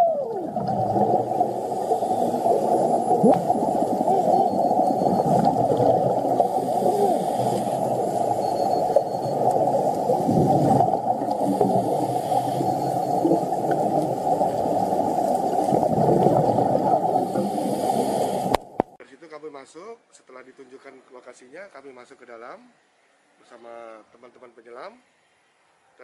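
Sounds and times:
underwater air bubbling: 0:00.0 - 0:19.0.

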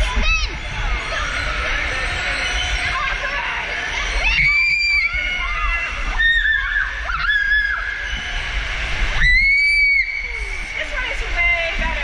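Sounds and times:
riders screaming: 0:04.0 - 0:08.5.

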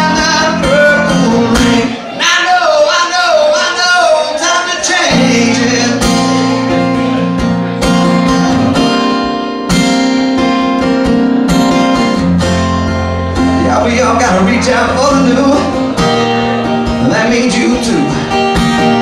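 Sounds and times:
person singing: 0:00.0 - 0:09.0
acoustic guitar strumming: 0:00.0 - 0:19.0.

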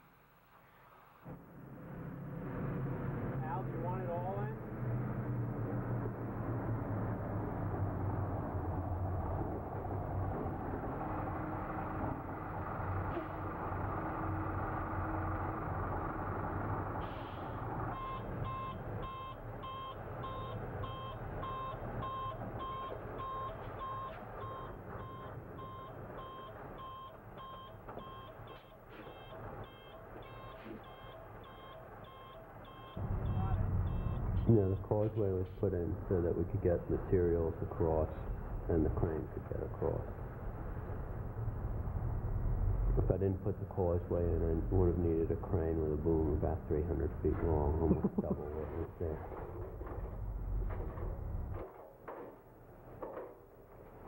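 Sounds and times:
diesel truck engine rumbling: 0:01.3 - 0:51.6
reversing beeper: 0:17.9 - 0:34.7.

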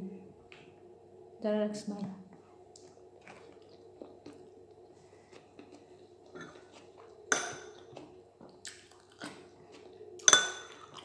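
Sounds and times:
clink on ceramic plate: 0:07.3 - 0:07.8, 0:10.2 - 0:10.9.

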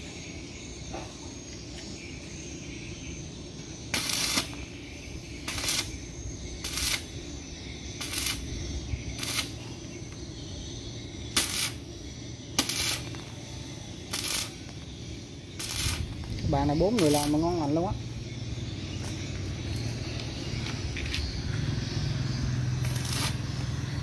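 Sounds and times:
welding arc crackling: 0:03.9 - 0:10.2, 0:11.2 - 0:17.8, 0:22.5 - 0:24.0.

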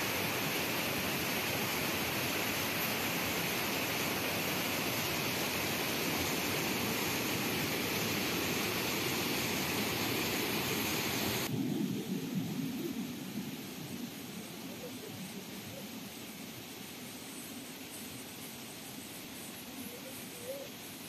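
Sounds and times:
waterfall rushing: 0:00.0 - 0:11.5.

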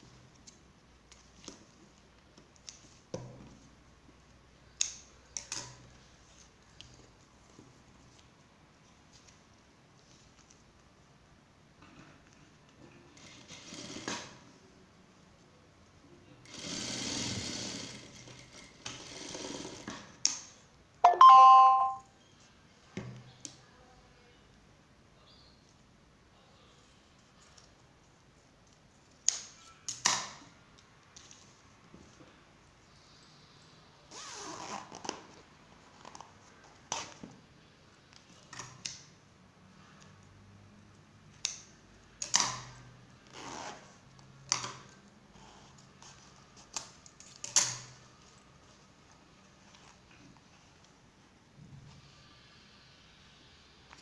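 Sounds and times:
sewing machine stitching: 0:13.2 - 0:14.4, 0:16.4 - 0:20.0
ringing two-note chime: 0:21.0 - 0:22.0.

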